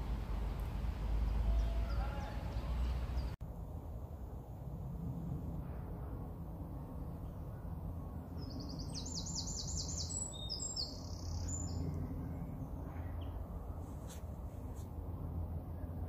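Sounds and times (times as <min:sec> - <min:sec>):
songbird singing: 0:00.0 - 0:03.4, 0:06.8 - 0:13.8.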